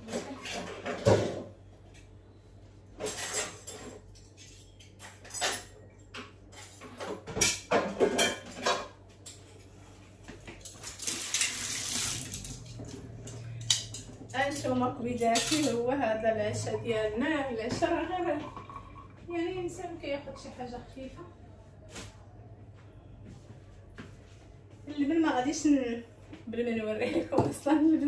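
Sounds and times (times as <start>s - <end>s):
dishes and cutlery clinking: 3.0s - 9.8s, 12.4s - 15.9s.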